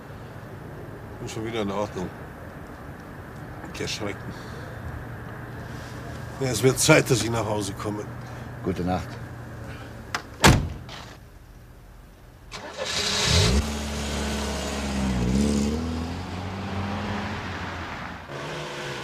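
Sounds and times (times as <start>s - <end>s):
car door slamming: 10.2s - 11.1s
car engine starting and revving: 12.5s - 19.0s.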